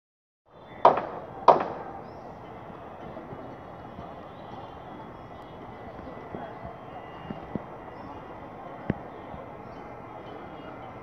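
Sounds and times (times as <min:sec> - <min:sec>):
outdoor background noise: 0:00.5 - 0:11.0
sharp knocks: 0:00.8 - 0:02.0.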